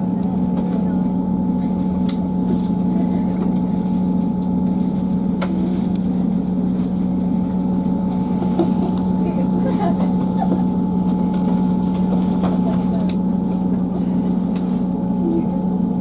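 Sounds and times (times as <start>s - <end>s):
low diesel engine drone: 0.0s - 16.0s.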